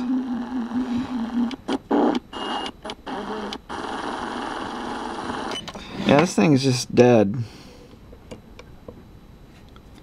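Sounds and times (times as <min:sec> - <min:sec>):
radio static hiss: 0:00.0 - 0:07.6.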